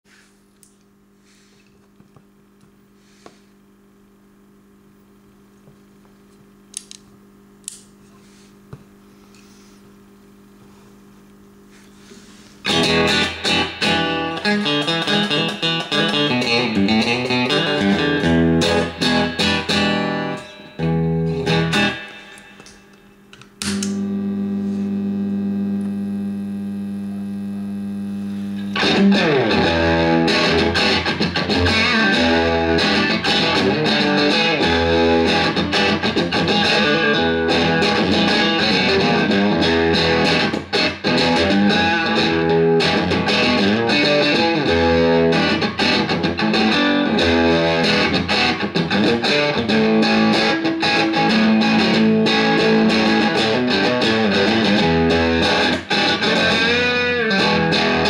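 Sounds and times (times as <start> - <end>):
fuzzed electric guitar: 11.7 - 58.0.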